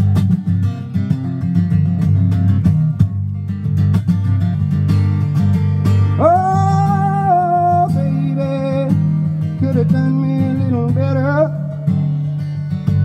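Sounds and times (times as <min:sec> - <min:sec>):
acoustic guitar: 0:00.0 - 0:13.0
man singing: 0:06.1 - 0:12.6.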